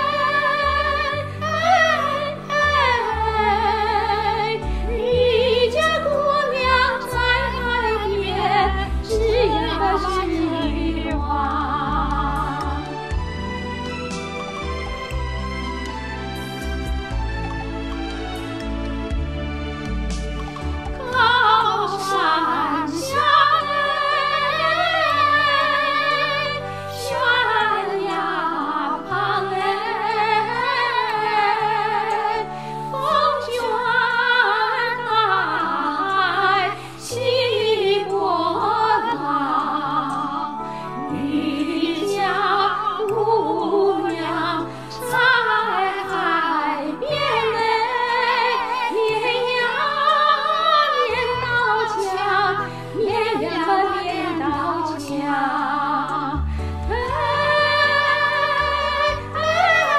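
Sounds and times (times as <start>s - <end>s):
two women singing: 0.0s - 13.2s, 20.9s - 59.9s
instrumental accompaniment: 0.0s - 59.9s.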